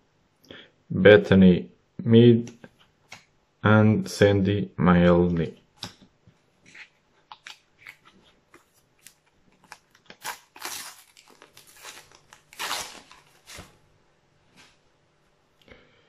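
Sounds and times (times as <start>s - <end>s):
sticker packet wrapper tearing: 7.3s - 13.7s.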